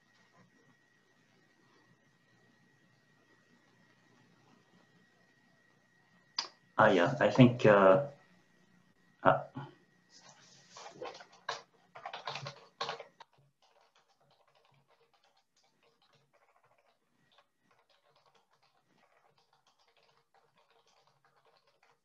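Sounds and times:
computer keyboard typing: 10.8 - 22.0.

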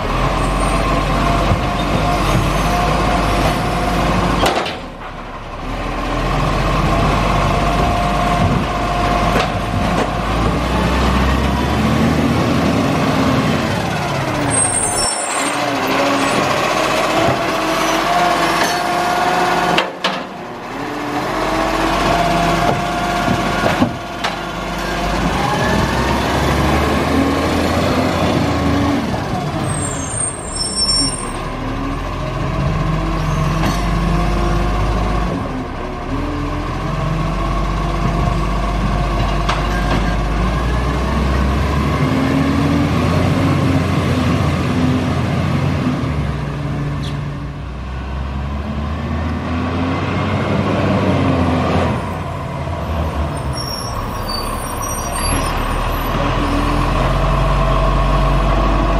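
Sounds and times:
garbage truck engine revving: 0.0 - 58.9
air brake squeal: 14.5 - 15.6, 29.6 - 31.4, 53.4 - 56.6.

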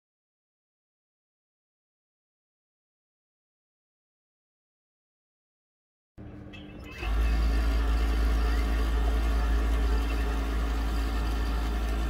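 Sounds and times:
overlock sewing machine running: 6.8 - 12.0.

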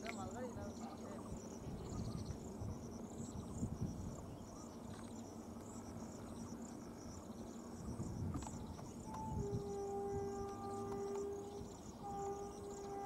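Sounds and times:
insects chirping: 0.0 - 13.0
low steady rumble: 0.0 - 13.0.

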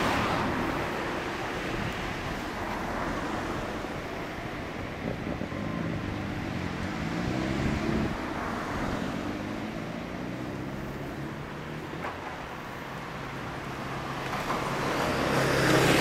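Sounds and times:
motorcycle engine revving: 5.4 - 8.2.

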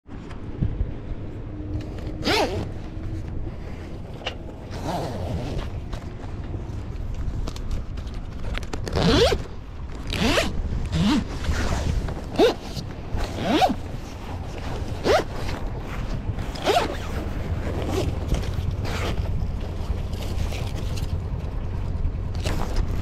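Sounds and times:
zipper rasping open: 1.9 - 6.0, 8.6 - 21.2.

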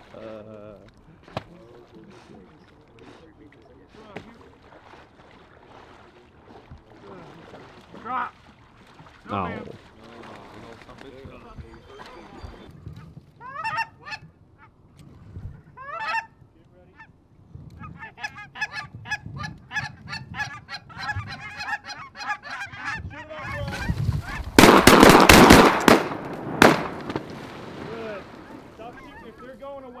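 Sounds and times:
goose calls blown fast: 13.4 - 14.2, 17.9 - 24.4
geese honking and clucking: 13.4 - 14.7, 15.7 - 17.1, 17.8 - 24.5, 28.4 - 29.8
shotgun blasts: 24.6 - 28.7.

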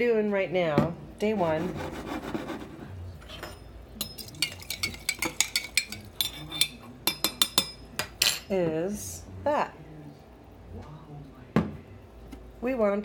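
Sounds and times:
metal spoon clinking glass jar: 3.4 - 8.4.

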